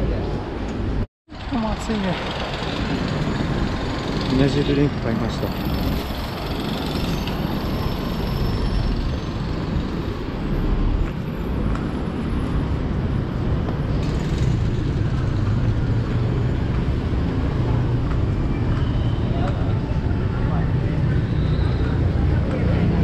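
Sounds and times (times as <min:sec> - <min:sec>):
road traffic noise: 0:00.0 - 0:23.0.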